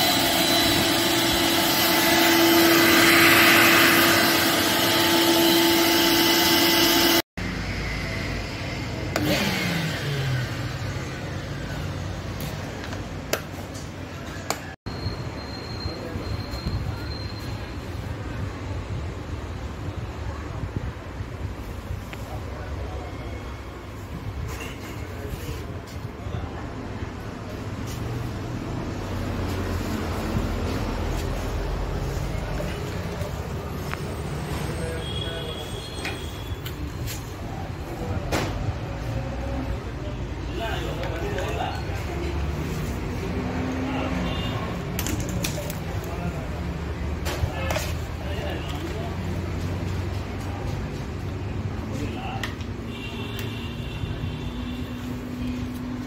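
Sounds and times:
vacuum cleaner motor whining down: 0.0 - 7.2.

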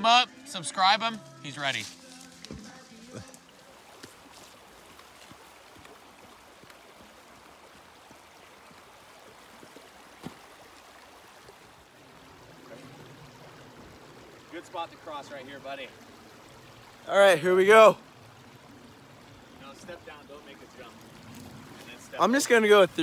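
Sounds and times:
shallow stream running: 0.0 - 23.0.

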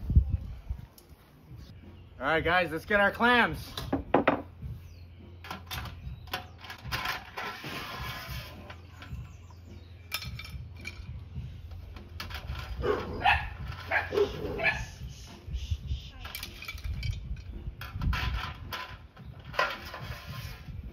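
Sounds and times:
dog barking: 12.8 - 14.9.

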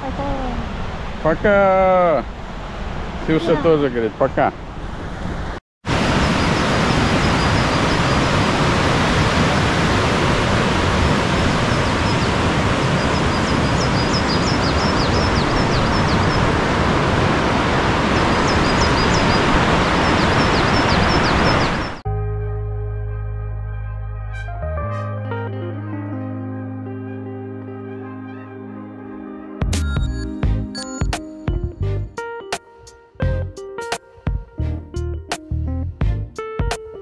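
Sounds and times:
small birds chirping: 13.0 - 16.4, 18.2 - 22.0.

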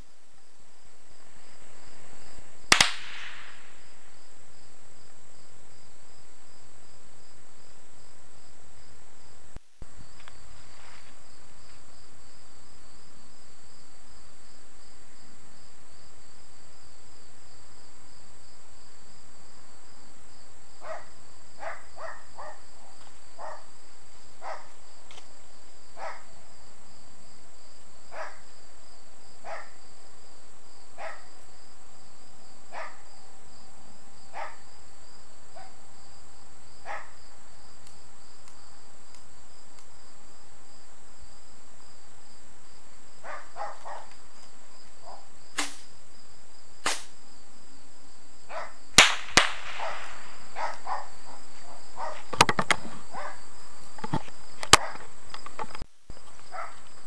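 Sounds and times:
high insect drone: 0.0 - 57.0
insects chirping: 0.0 - 57.0
sharp cracks: 2.7 - 4.0, 45.5 - 45.9, 46.8 - 47.2, 49.0 - 50.9
short hiss: 45.6 - 45.9, 46.8 - 47.2.

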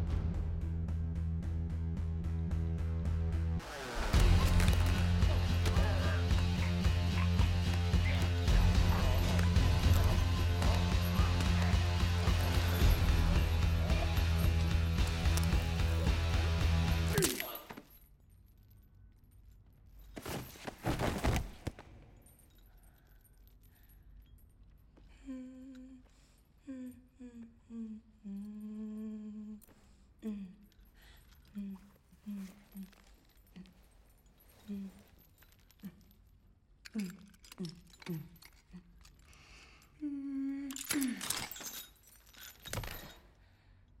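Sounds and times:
strained vocal cry: 4.1 - 16.4
voice groaning: 4.1 - 16.4
metal chain jangling: 4.4 - 20.8, 22.1 - 25.1, 30.6 - 40.0, 40.6 - 44.0
body dropping on stone floor: 20.1 - 22.0
woman humming: 25.1 - 30.8, 31.5 - 33.8, 34.6 - 35.2, 40.0 - 41.4.

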